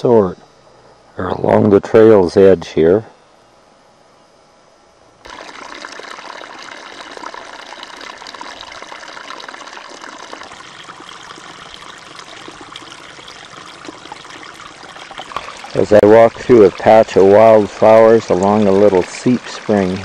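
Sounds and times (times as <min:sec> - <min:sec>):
spring water trickling: 0:05.2 - 0:20.0.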